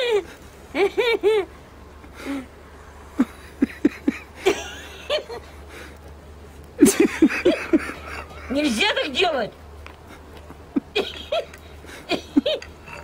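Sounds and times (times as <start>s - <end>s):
woman laughing: 0.0s - 1.5s, 3.2s - 5.5s, 6.8s - 9.3s, 10.1s - 13.0s.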